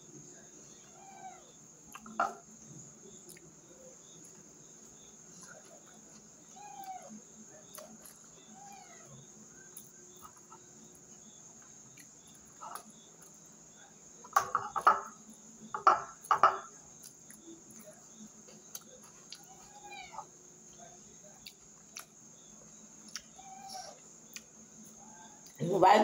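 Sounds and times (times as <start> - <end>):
crickets chirping: 0.0 - 26.0
pet crying: 0.8 - 1.6, 6.5 - 7.2, 8.5 - 9.2, 19.4 - 20.3, 23.3 - 24.0.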